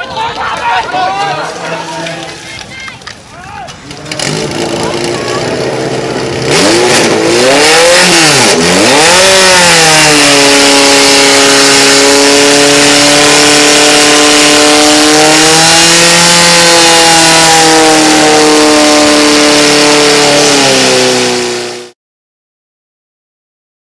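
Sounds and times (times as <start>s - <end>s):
pump engine revving: 3.9s - 22.0s.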